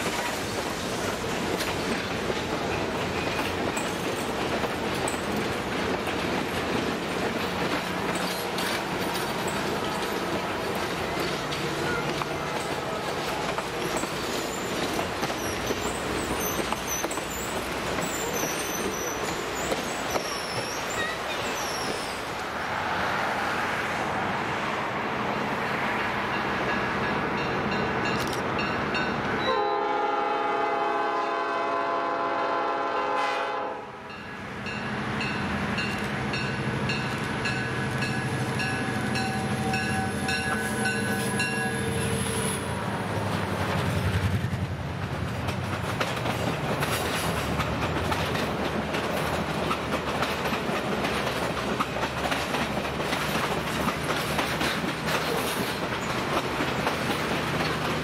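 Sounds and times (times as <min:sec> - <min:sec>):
train wheels clicking over rail joints: 0:00.0 - 0:22.2, 0:35.2 - 0:58.0
diesel locomotive engines droning: 0:00.0 - 0:58.0
locomotive air horn blast: 0:29.4 - 0:34.0.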